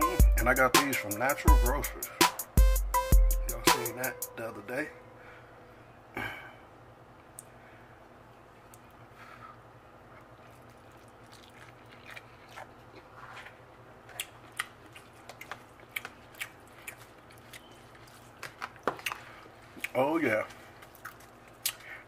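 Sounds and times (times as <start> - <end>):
faint steady hum: 3.4 - 22.0
person chewing food: 10.0 - 22.0
wet mouth clicks and smacks: 20.9 - 21.9.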